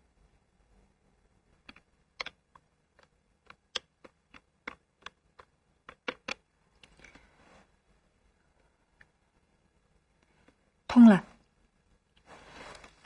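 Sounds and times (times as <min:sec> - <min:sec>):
telephone buttons clicking: 0:01.7 - 0:02.4, 0:03.0 - 0:07.0.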